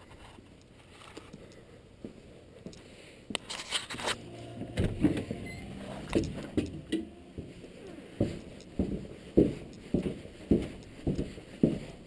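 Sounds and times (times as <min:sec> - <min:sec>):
footsteps thudding: 0:04.6 - 0:12.0.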